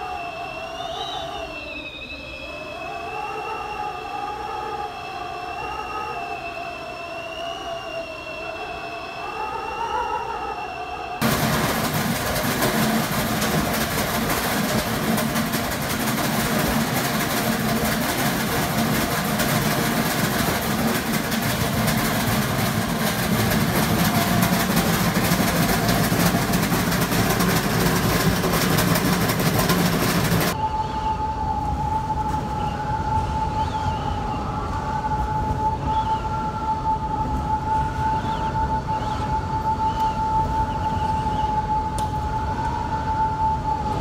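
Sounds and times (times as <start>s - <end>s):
high wind whistle: 0.0s - 44.0s
wind roaring and howling: 0.0s - 44.0s
low hum: 11.2s - 44.0s.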